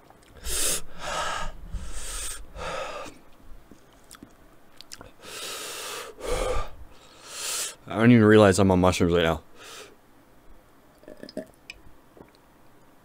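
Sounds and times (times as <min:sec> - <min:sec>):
man breathing heavily: 0:00.4 - 0:03.3, 0:05.0 - 0:07.8, 0:09.5 - 0:10.0.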